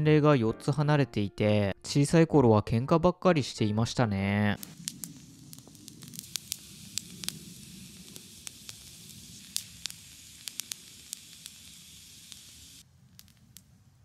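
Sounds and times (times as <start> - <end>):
bonfire crackling and hissing: 4.5 - 14.0.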